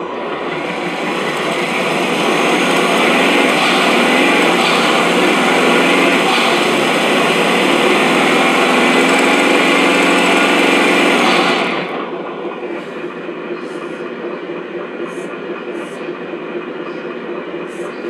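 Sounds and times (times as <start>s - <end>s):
engine sound from speaker: 0.0s - 18.0s.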